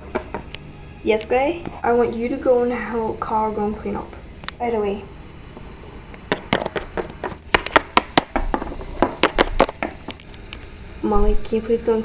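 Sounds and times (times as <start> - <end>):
plastic toys tapping on wood: 6.3 - 10.0.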